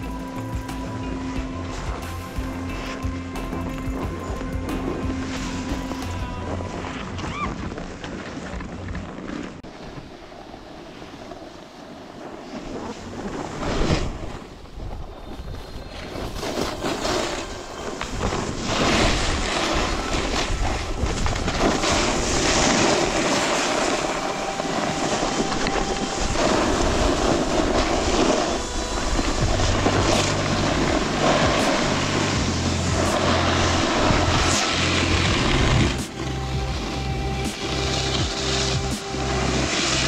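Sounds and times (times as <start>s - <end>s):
bass music: 0.0s - 7.0s, 28.8s - 40.0s
snowboard scraping on snow: 0.0s - 40.0s
wind buffeting microphone: 1.5s - 39.7s.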